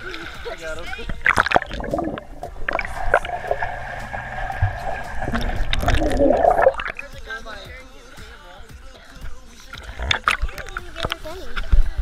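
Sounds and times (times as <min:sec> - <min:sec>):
water splashing against camera: 0:00.0 - 0:07.6, 0:09.2 - 0:12.0
sharp knocks and gurgles: 0:01.1 - 0:07.1.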